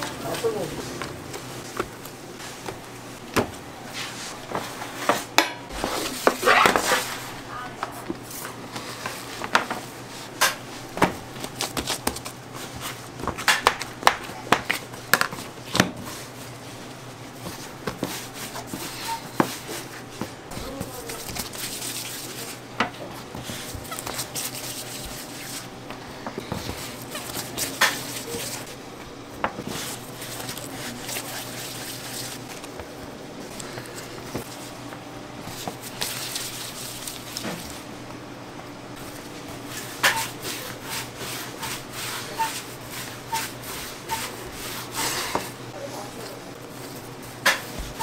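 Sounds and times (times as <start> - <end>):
utensils pans and trays clattering: 0.0 - 16.3, 17.4 - 25.7, 26.3 - 28.8, 39.0 - 48.0.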